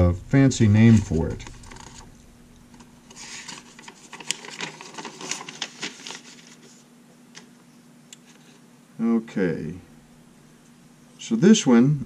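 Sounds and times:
paper rustling and crinkling: 0:00.6 - 0:02.1, 0:02.7 - 0:07.5.

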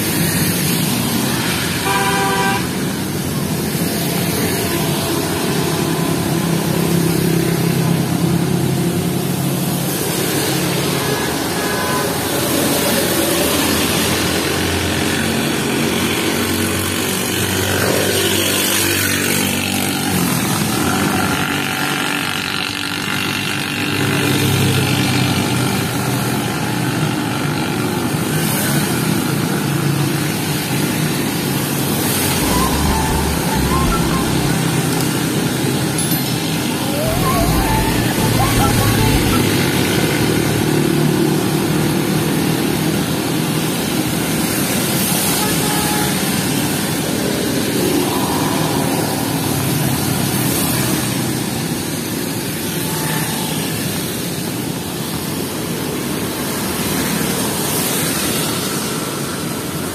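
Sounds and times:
vehicle horn beep: 0:01.8 - 0:02.7.

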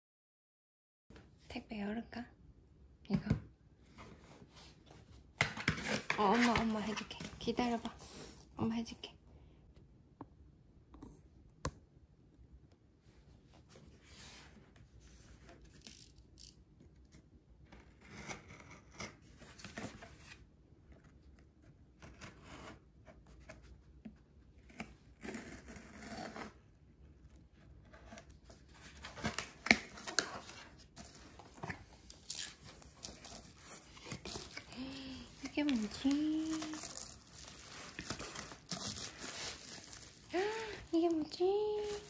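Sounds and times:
packing tape tearing: 0:28.1 - 0:42.0.

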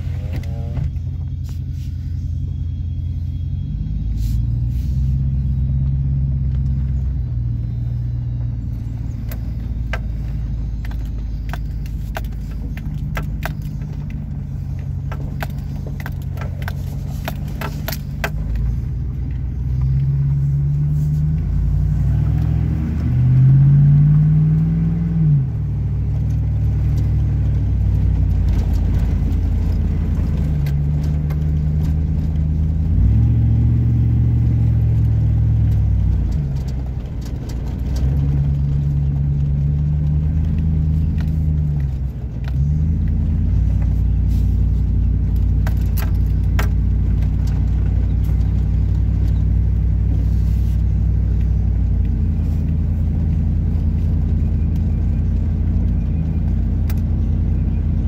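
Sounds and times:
car exhaust drone: 0:00.0 - 0:58.0.

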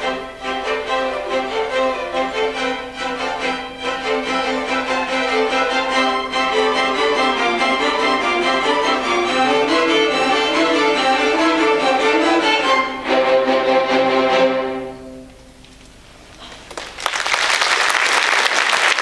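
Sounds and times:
string orchestra playing: 0:00.0 - 0:15.6
audience applauding: 0:16.4 - 0:19.0.

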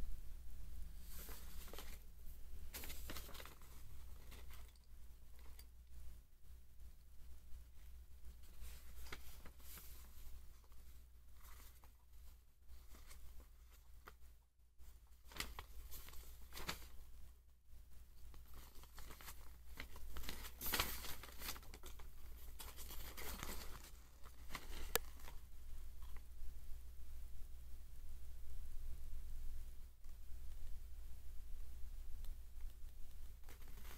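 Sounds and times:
paper leaflet rustling and crinkling: 0:01.0 - 0:02.1, 0:02.7 - 0:05.7, 0:08.3 - 0:17.1, 0:18.3 - 0:26.2, 0:33.4 - 0:33.9.

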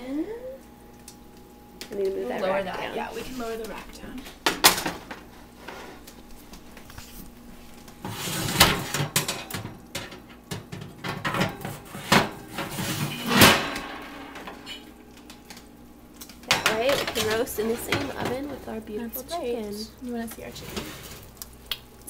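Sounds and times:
oven racks clanking and rattling: 0:03.6 - 0:06.1, 0:08.0 - 0:15.6, 0:16.3 - 0:21.3.

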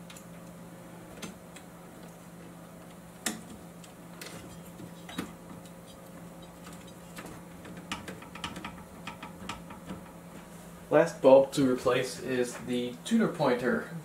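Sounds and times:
steady low hum: 0:00.0 - 0:14.0
screwdriver tapping metal: 0:07.8 - 0:10.0.

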